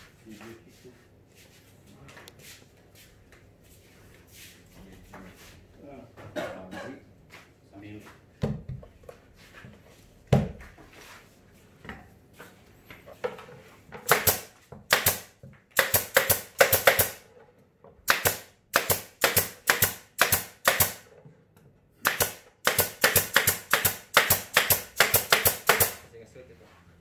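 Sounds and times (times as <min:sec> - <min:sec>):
pneumatic nail gun firing: 0:14.1 - 0:17.2, 0:18.1 - 0:21.1, 0:22.0 - 0:26.0.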